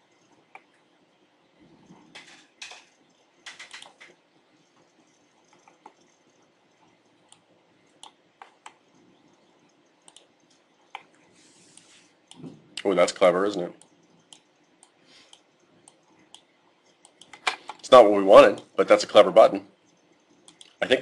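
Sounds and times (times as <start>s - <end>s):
mouse and keyboard clicks: 2.1s - 4.2s, 10.0s - 11.1s.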